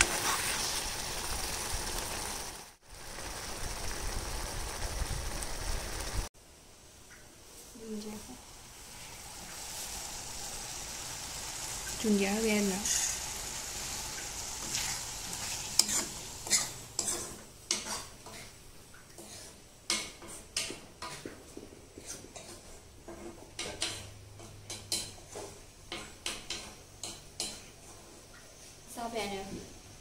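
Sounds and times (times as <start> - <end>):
soft sizzle from pan: 0.0 - 30.0
metal spoon scraping iron pan: 14.6 - 18.5.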